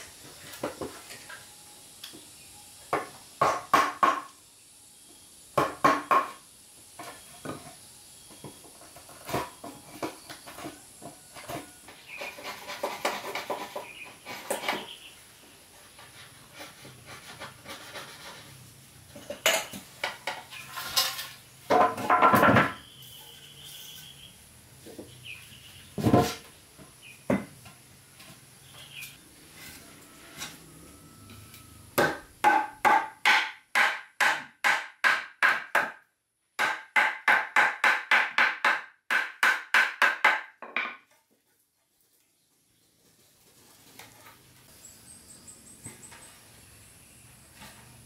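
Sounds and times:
hammer striking wood: 0:02.9 - 0:04.3, 0:05.6 - 0:06.4, 0:32.0 - 0:36.0, 0:36.6 - 0:41.0.

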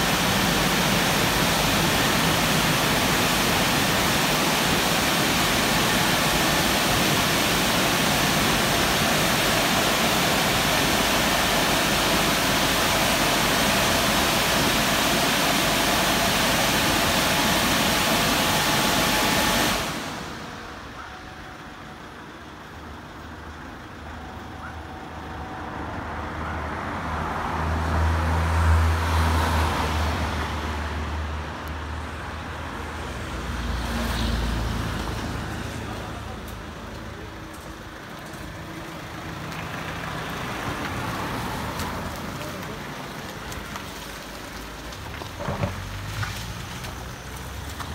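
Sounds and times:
drying blowers rushing air: 0:00.0 - 0:20.9
car engine idling and revving: 0:00.0 - 0:47.9.

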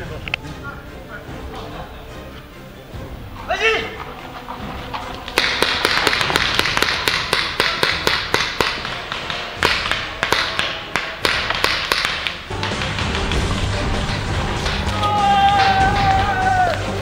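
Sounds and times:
paintball markers popping: 0:05.2 - 0:13.6.

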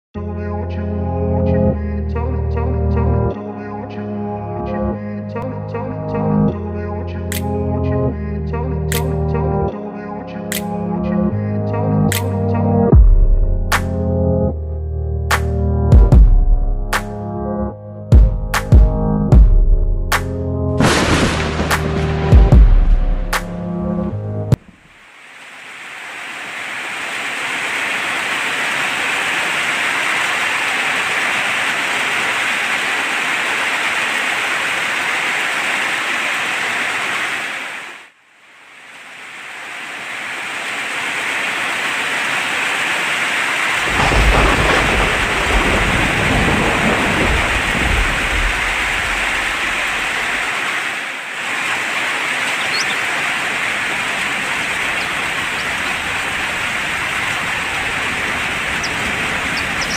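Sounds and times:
heavy rain hiss: 0:20.8 - 0:22.6, 0:24.6 - 0:59.9
thunder rumble: 0:20.8 - 0:23.2, 0:43.8 - 0:50.3.

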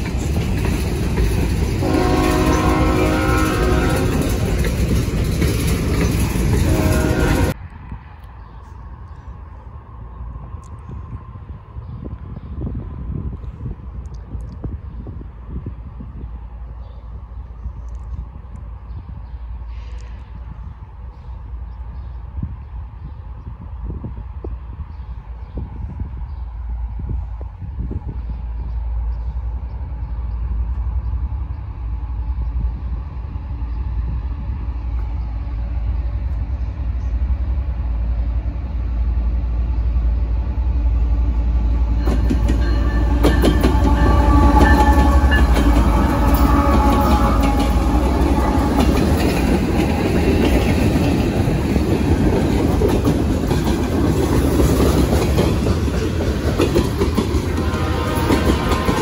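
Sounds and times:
wheels clicking over rail joints: 0:00.0 - 0:07.6
train wheel noise: 0:00.0 - 0:08.4, 0:09.2 - 0:59.0
diesel locomotive rumble: 0:00.0 - 0:59.0.

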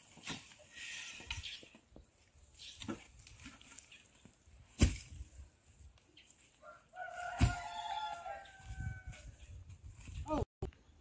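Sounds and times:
rooster crowing: 0:06.6 - 0:09.3.

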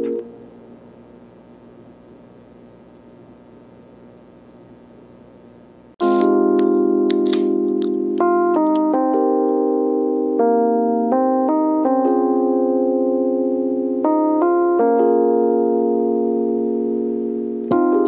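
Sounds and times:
sustained keyboard chords: 0:00.0 - 0:00.5, 0:06.0 - 0:18.0.

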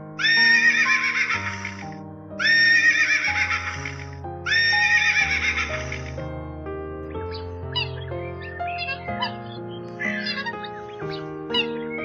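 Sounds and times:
background music of sustained notes: 0:00.0 - 0:12.0
horses whinnying: 0:02.4 - 0:06.2.

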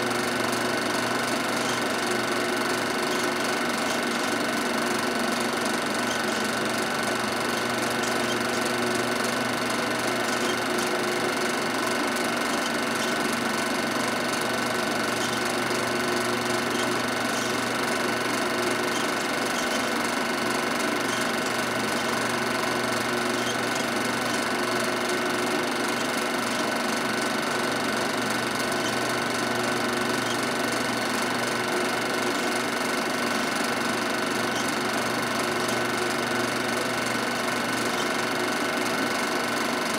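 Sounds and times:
film projector whirring and clattering: 0:00.0 - 0:39.9.

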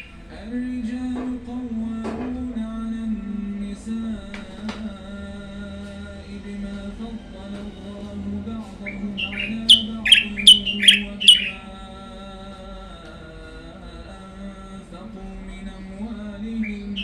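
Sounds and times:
songbird singing: 0:00.0 - 0:06.9, 0:08.0 - 0:12.5, 0:15.5 - 0:17.0
background music: 0:00.0 - 0:17.0.

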